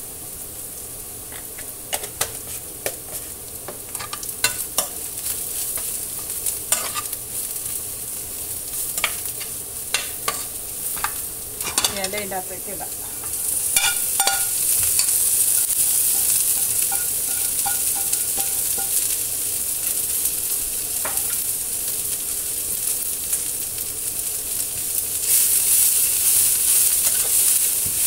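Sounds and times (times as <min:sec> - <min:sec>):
greens sizzling in hot oil: 0:00.0 - 0:28.0
spatula stirring greens: 0:01.3 - 0:07.8, 0:08.5 - 0:19.3, 0:21.0 - 0:21.6, 0:25.2 - 0:28.0.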